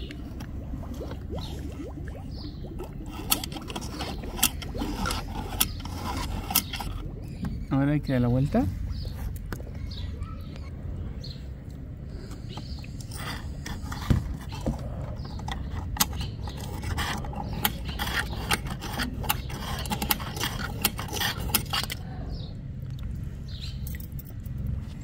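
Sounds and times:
low steady rumble: 0.0 - 25.0
brush scraping plastic grille: 2.8 - 7.0, 12.6 - 22.0.

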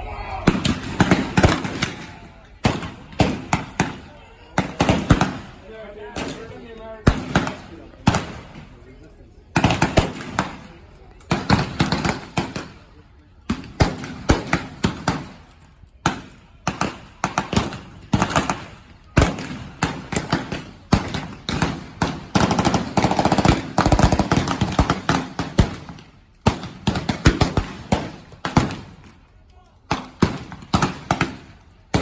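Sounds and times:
rifle gunshots: 16.1 - 29.0.

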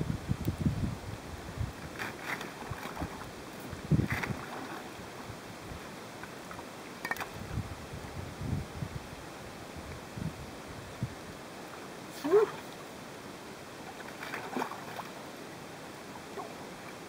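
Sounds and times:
wind buffeting microphone: 0.0 - 2.0, 2.6 - 4.6, 7.3 - 9.2, 9.8 - 11.4
water sloshing: 1.9 - 5.2, 13.8 - 15.2.

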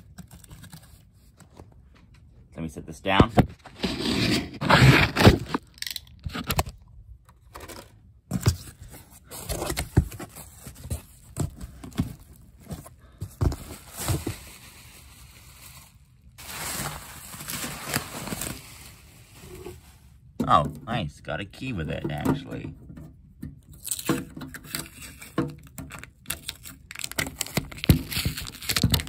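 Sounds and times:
bubble wrap crinkling: 13.4 - 20.2, 23.8 - 29.0.

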